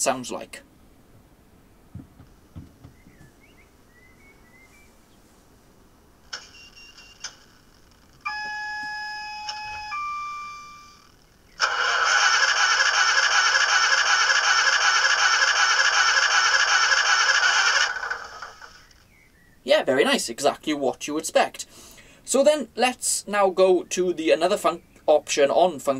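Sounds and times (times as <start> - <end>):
diesel engine starter cranking: 11.1 - 19.0.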